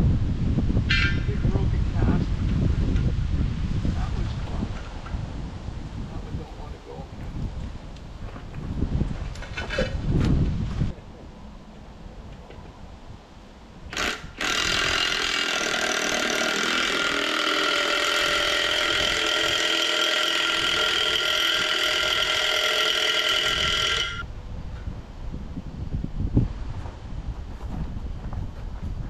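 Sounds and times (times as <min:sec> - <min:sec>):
power tool whining: 0:13.9 - 0:24.2.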